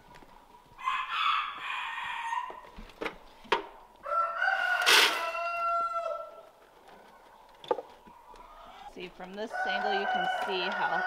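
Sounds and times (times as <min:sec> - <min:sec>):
rooster crowing: 0:00.8 - 0:02.6, 0:04.0 - 0:06.5, 0:09.5 - 0:11.0.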